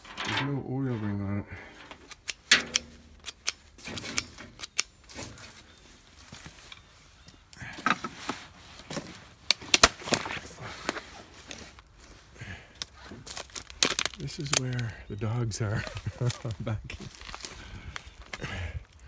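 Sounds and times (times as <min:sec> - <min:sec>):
twigs snapping underfoot: 0:02.0 - 0:08.0, 0:08.8 - 0:11.9, 0:12.7 - 0:15.0, 0:15.8 - 0:19.0
footsteps through dry brush: 0:02.8 - 0:19.0.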